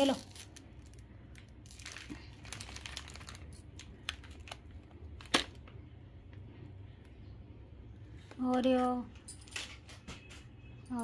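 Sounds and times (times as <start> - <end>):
plastic packet crinkling and clicking: 0.0 - 5.7.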